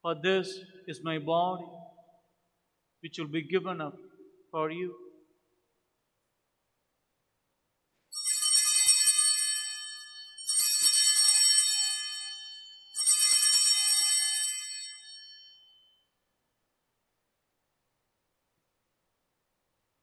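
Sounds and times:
altar bells jingling: 8.2s - 15.9s.

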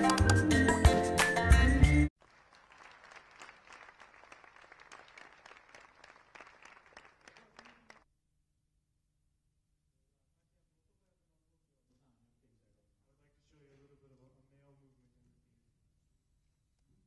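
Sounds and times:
audience applause: 2.2s - 8.0s.

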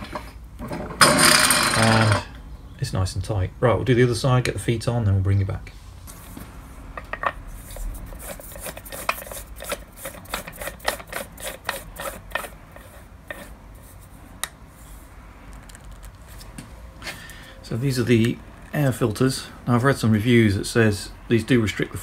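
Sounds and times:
plastic housing scraping on thread: 7.0s - 13.6s.

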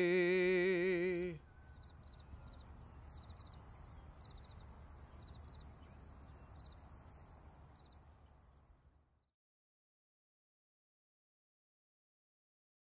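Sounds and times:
crickets chirping: 0.0s - 9.3s
steady high hiss: 0.0s - 9.3s.

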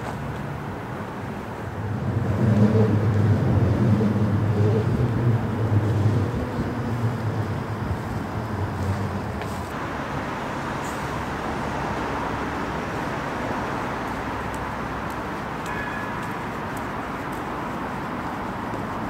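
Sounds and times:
busy road traffic: 0.0s - 19.0s.

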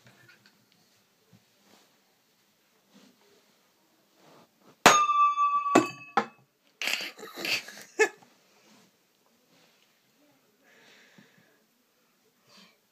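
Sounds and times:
metal disc ringing: 4.9s - 6.4s.

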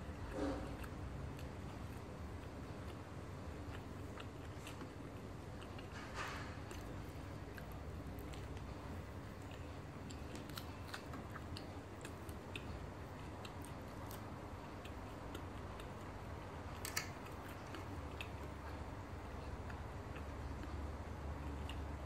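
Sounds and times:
person chewing: 0.0s - 22.0s.

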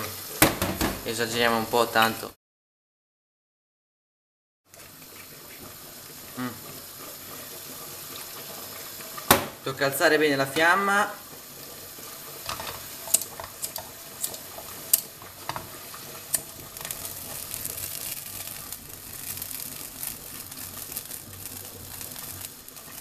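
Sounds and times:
food sizzling in a frying pan: 0.0s - 2.4s, 4.7s - 23.0s.

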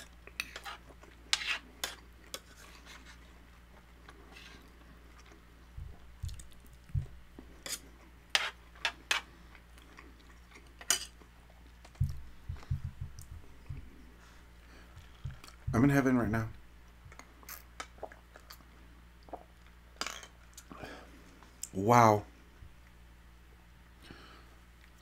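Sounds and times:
chewing thuds: 5.7s - 7.2s, 11.8s - 14.0s.

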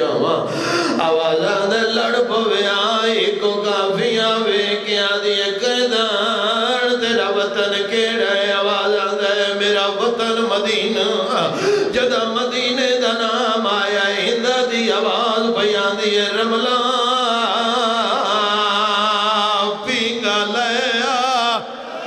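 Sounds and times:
person chanting a lament: 0.0s - 22.0s.

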